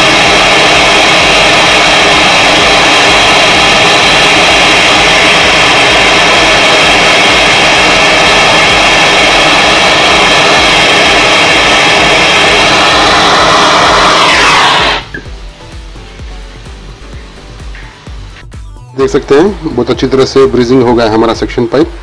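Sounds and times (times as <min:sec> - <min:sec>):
gas torch flame hissing: 0:00.0 - 0:15.3.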